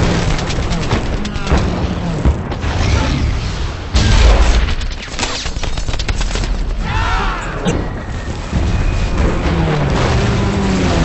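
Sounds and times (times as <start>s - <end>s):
rapid gunfire: 0.0s - 2.9s, 4.0s - 6.8s.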